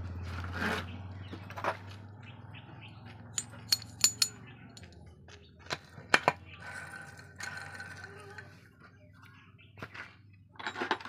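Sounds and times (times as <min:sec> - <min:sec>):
metallic clinks of gear shaft: 0:03.4 - 0:04.9.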